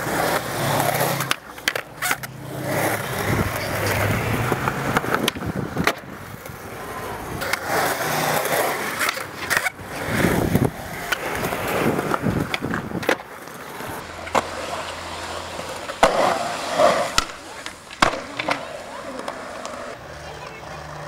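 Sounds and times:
skateboard clacks: 0:00.0 - 0:21.0
skateboard wheels rolling on concrete: 0:00.0 - 0:21.0.

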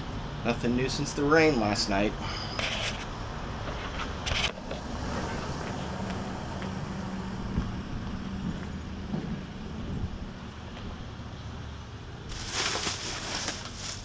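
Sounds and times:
low engine hum: 0:03.1 - 0:14.0
faint footsteps on asphalt: 0:05.5 - 0:09.9.

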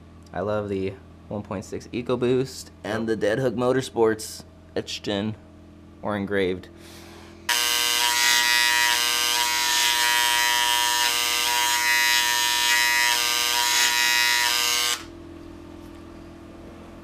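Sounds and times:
engraving pen buzzing: 0:07.5 - 0:15.1.

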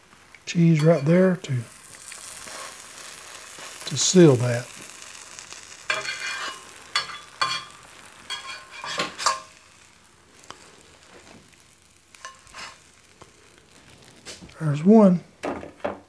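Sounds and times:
butter frying: 0:00.0 - 0:16.0
metal spatula scraping pan: 0:05.8 - 0:09.8, 0:12.2 - 0:12.9.

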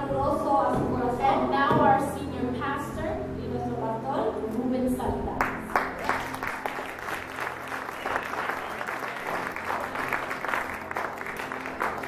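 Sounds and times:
congregation applauding: 0:05.4 - 0:12.0.

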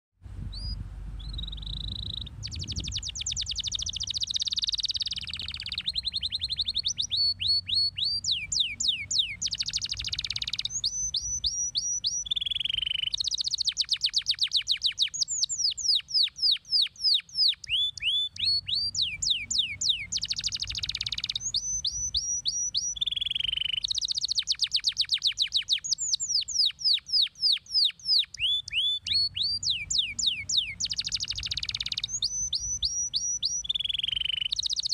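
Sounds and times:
faint low rumble: 0:00.2 - 0:13.3
canary singing: 0:00.5 - 0:34.9.

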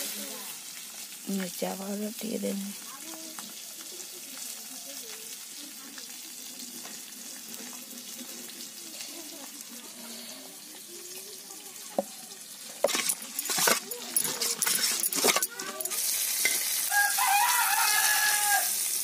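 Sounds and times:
faint distant voices: 0:02.8 - 0:16.8.

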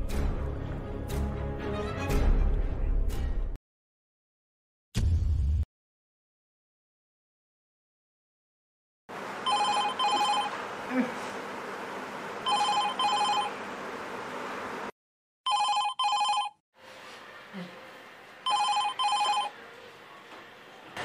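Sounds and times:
telephone double ring: 0:09.4 - 0:10.6, 0:12.5 - 0:13.5, 0:15.5 - 0:16.6, 0:18.5 - 0:19.5.

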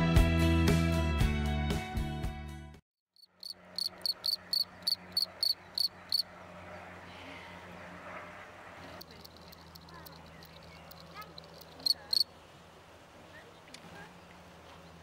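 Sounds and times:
cricket chirping: 0:03.2 - 0:06.2, 0:09.0 - 0:12.3.

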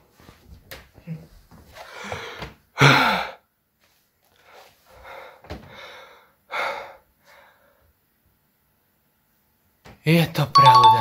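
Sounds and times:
man breathing hard and gasping: 0:01.8 - 0:03.5, 0:04.4 - 0:07.9.

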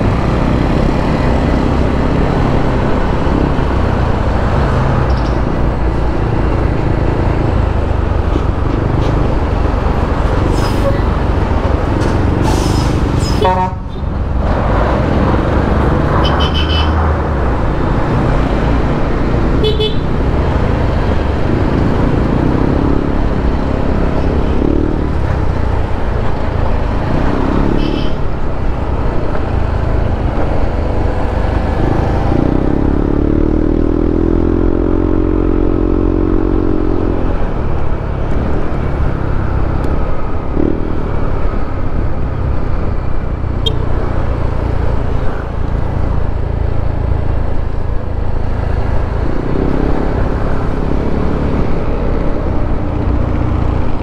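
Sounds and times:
motorcycle engine and road noise: 0:00.0 - 0:54.0
horn toots: 0:12.7 - 0:14.1, 0:16.2 - 0:17.0, 0:19.6 - 0:20.2.

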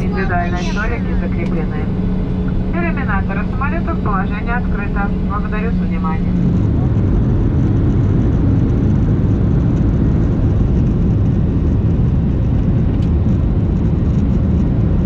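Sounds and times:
jet engines roaring in cabin: 0:00.0 - 0:15.0.

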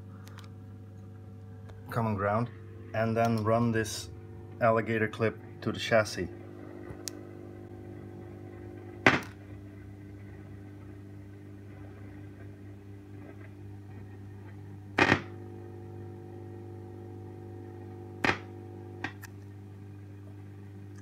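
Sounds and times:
amplifier mains hum and buzz: 0:00.0 - 0:21.0
loud pops from amplifier: 0:09.0 - 0:09.4, 0:15.0 - 0:15.4, 0:18.2 - 0:19.3.

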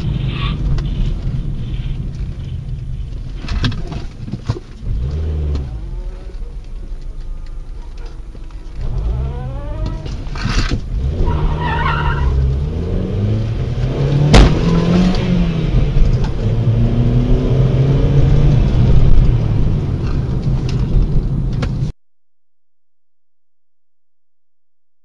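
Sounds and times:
car engine accelerating: 0:04.7 - 0:21.9.

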